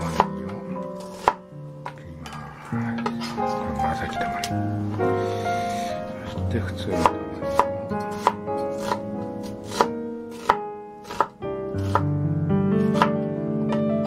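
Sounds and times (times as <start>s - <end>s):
knife slicing onion: 0.0s - 1.4s, 7.0s - 12.1s, 12.8s - 13.2s.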